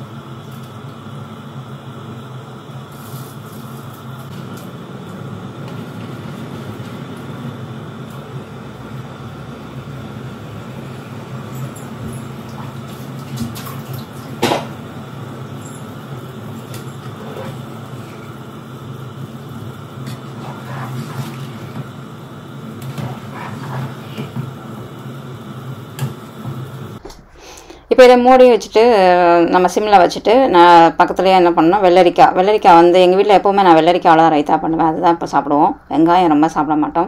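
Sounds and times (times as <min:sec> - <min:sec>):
water boiling hard in a pot: 0:00.0 - 0:27.0.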